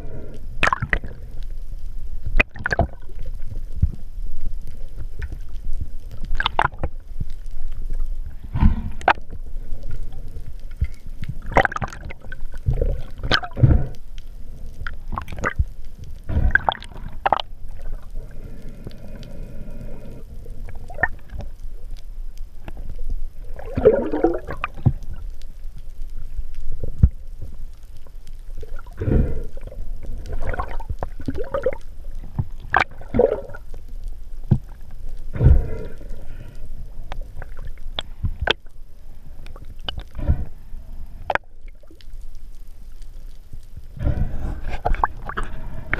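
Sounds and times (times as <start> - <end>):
underwater gurgling and bubbling: 0.0 - 1.5, 2.2 - 22.0, 22.6 - 25.4, 26.2 - 42.3, 43.7 - 45.9.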